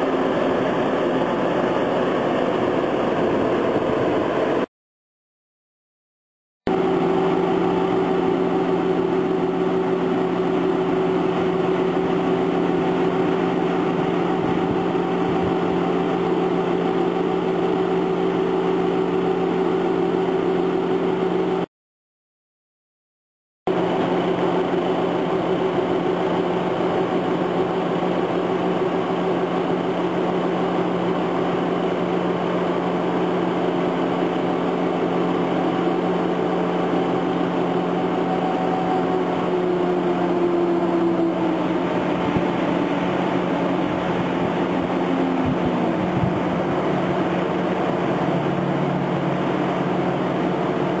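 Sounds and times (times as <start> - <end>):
engine and hydraulics running: 0.0 - 4.7, 6.7 - 21.7, 23.7 - 51.0
whine sliding down in pitch: 35.0 - 51.0.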